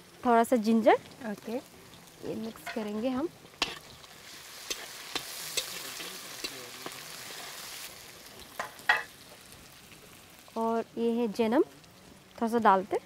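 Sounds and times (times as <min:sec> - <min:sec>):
onions sizzling in hot oil: 0:00.0 - 0:13.0
ladle scraping and knocking wok: 0:02.5 - 0:07.6.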